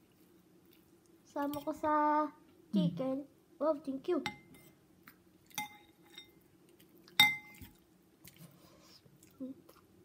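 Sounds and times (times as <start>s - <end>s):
metal spoon clinking ceramic bowl: 4.3s - 4.7s, 5.5s - 6.4s, 7.2s - 7.6s.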